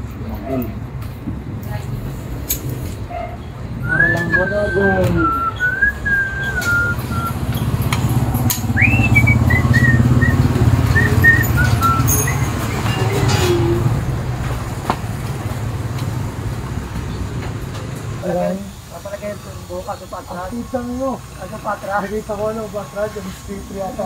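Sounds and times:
person whistling: 3.8 - 7.4, 8.8 - 13.2
engine running: 5.6 - 21.6.

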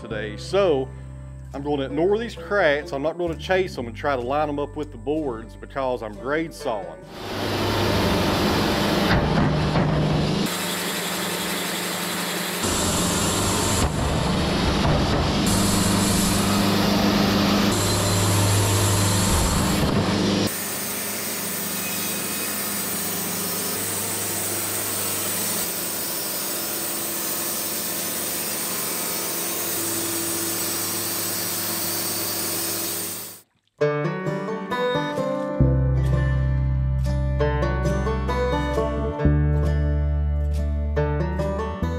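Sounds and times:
band saw blade cutting log: 7.1 - 33.4
sawmill motor drone: 7.1 - 33.4.

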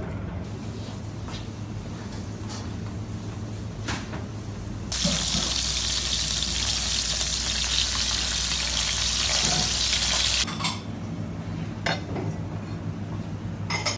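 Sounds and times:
fish sizzling in frying oil: 4.9 - 10.5.

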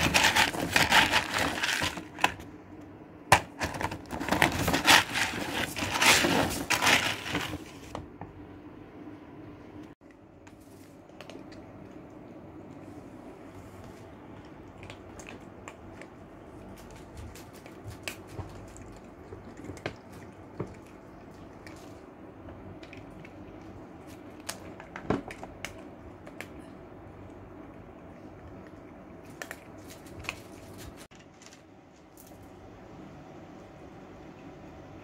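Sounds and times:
cats crunching dry kibble: 0.0 - 2.5, 3.5 - 7.9, 14.3 - 26.6, 27.7 - 32.4
low steady hum: 0.0 - 35.0.

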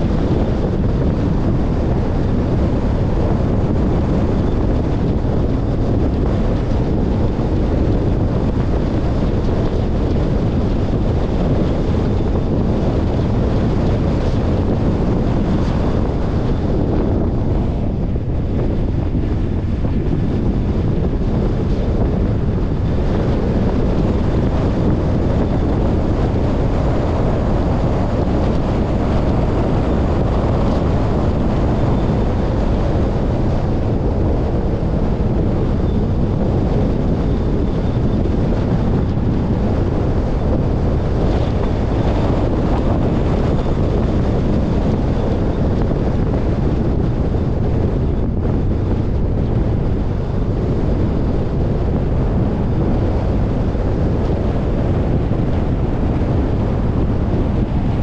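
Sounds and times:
car road noise rumble: 0.0 - 58.0
wind buffeting microphone: 0.0 - 58.0.

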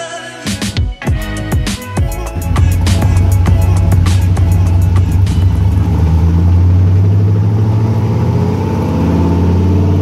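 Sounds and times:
background music: 0.0 - 7.4
engine idling rumble: 2.0 - 8.0.

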